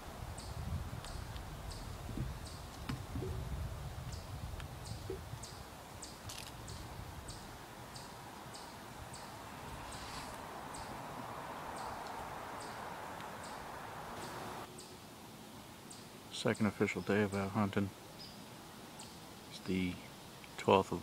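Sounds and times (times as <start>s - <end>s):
soft steady hiss: 0.0s - 21.0s.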